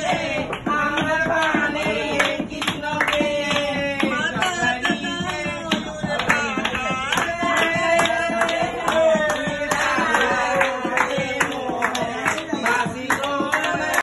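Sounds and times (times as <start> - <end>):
hands clapping: 0.0 - 14.0
song with singing over a beat: 0.0 - 14.0.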